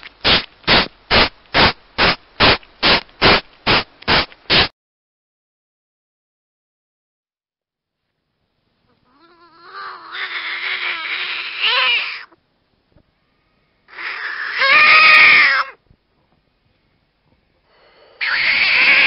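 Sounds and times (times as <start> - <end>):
frog calling: 13.9 - 15.8.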